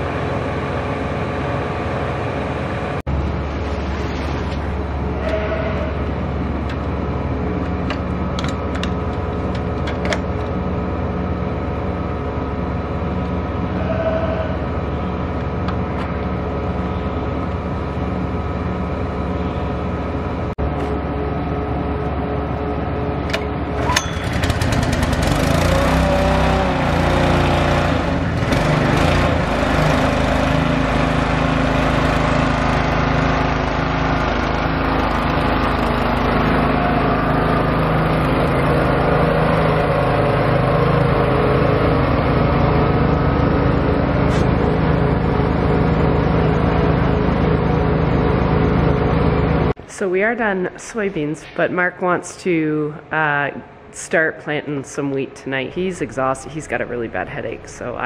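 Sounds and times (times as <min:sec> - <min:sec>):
small pump engine running: 0:00.0 - 0:49.7
tractor engine idling: 0:22.4 - 0:26.8, 0:28.2 - 0:49.7.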